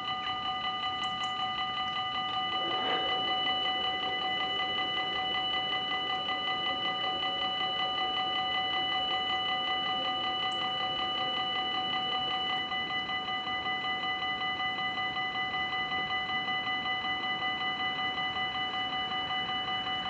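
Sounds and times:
level crossing bells ringing: 1.8s - 12.7s.

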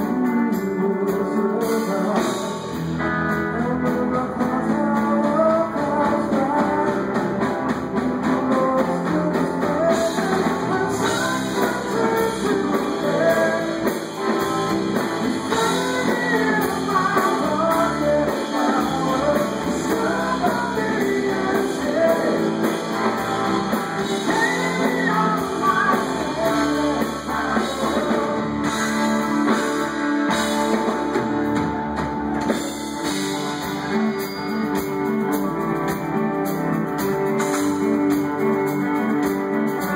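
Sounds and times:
person singing lead vocal: 0.0s - 31.3s
drum kit: 0.0s - 39.9s
electric bass: 0.0s - 39.9s
electric guitar: 0.0s - 39.9s.

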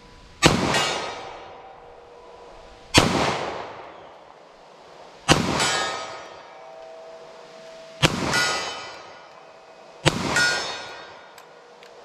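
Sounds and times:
pistol shots with echo: 0.4s - 1.7s, 2.9s - 4.1s, 5.3s - 6.3s, 8.0s - 9.2s, 10.0s - 11.2s
steel target ringing: 0.4s - 4.1s, 5.3s - 11.4s.

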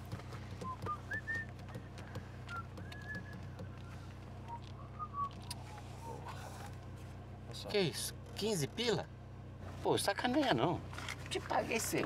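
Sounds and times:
car hum: 0.0s - 12.0s
person whistling: 0.6s - 1.6s, 2.4s - 5.4s.

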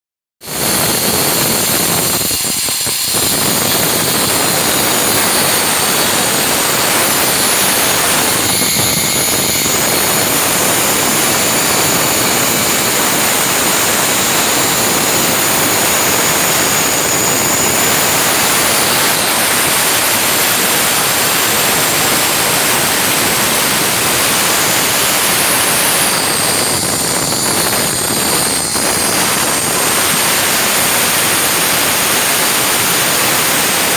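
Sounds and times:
electric stone cutter grinding: 0.4s - 33.9s.

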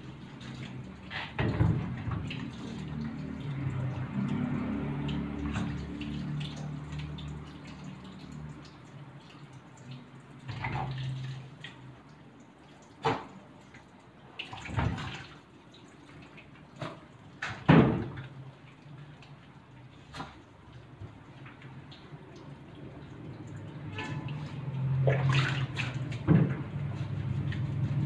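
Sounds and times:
water dripping and splashing: 0.0s - 28.0s
sharp splashes or knocks: 23.9s - 26.9s.

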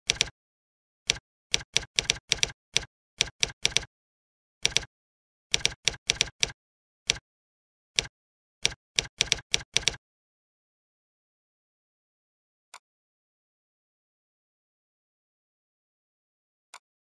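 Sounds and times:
typing on computer keyboard: 0.1s - 0.3s, 1.1s - 3.9s, 4.6s - 4.9s, 5.5s - 7.2s, 8.0s - 10.0s.

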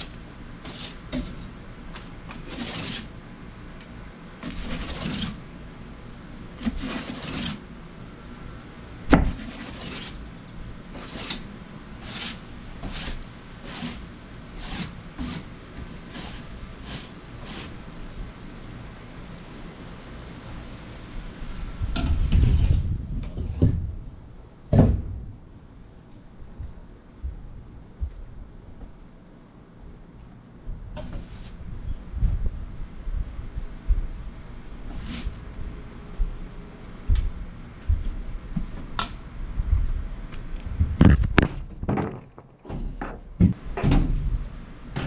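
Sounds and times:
push broom sweeping wooden deck: 0.0s - 3.2s, 4.4s - 5.5s, 6.5s - 7.7s, 9.1s - 10.3s, 10.9s - 17.9s, 34.8s - 35.5s
low thumps: 24.7s - 25.5s.

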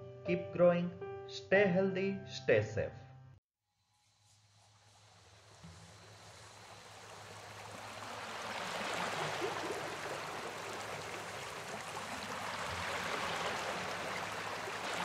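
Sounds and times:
waves washing up a beach: 4.9s - 15.0s.

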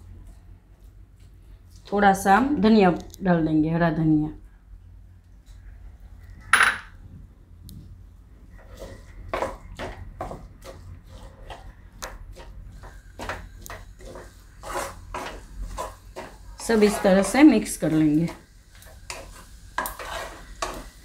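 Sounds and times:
spatula scraping a pan: 8.5s - 21.0s.

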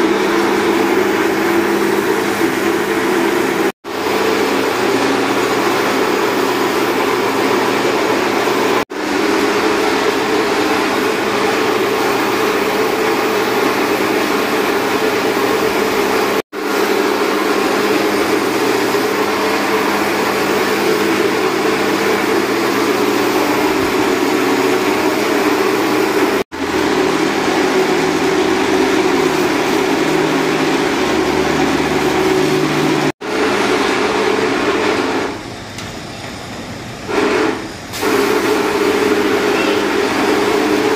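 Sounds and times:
pressure washer spraying plastic: 0.0s - 35.4s, 37.1s - 40.9s.

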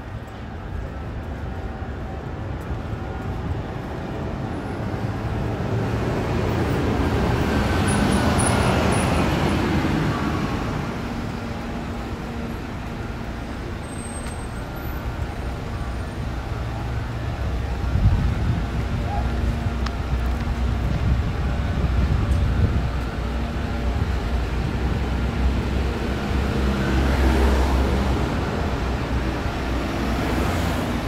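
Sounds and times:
low traffic rumble: 0.0s - 31.0s.

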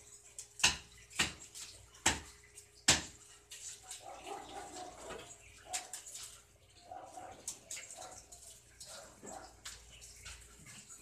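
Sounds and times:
sharp knocks: 2.9s - 3.2s.

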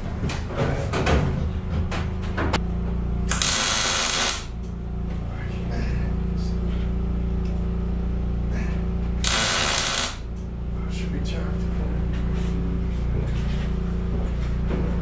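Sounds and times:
steady low hum: 0.0s - 15.0s
power tool bursts: 3.3s - 4.6s, 9.2s - 10.3s.

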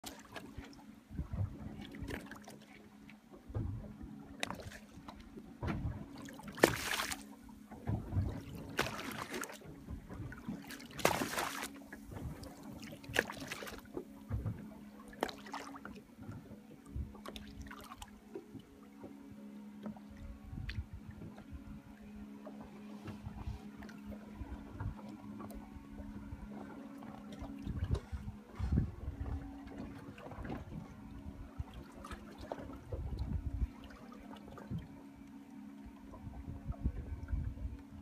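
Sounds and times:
steady low hum: 0.0s - 38.0s
water slapping against boat hull: 3.4s - 19.2s, 22.4s - 31.0s.

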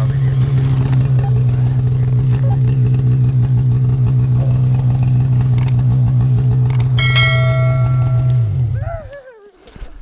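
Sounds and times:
short clicks: 6.7s - 7.1s
ringing bell chime: 6.7s - 8.6s.

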